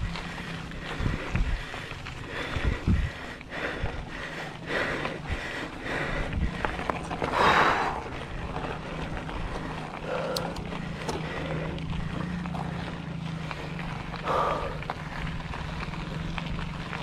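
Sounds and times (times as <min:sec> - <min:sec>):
bike tyres rolling hum: 0:00.0 - 0:17.0
bike rattling clicks: 0:04.9 - 0:17.0.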